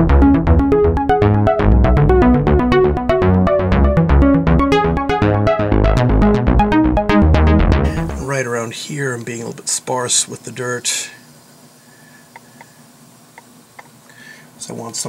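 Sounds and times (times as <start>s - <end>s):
instrumental background music: 0.0s - 8.5s.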